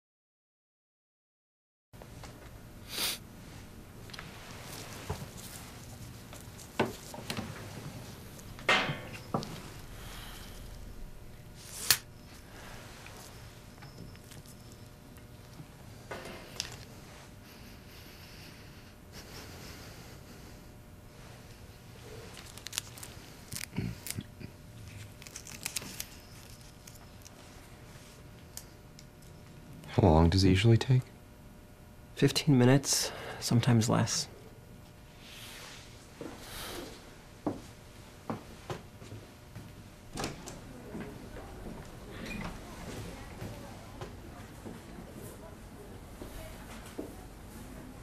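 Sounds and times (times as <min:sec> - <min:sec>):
sharp snap: 0:11.7 - 0:12.1
packaging crinkling and tearing: 0:22.3 - 0:27.4.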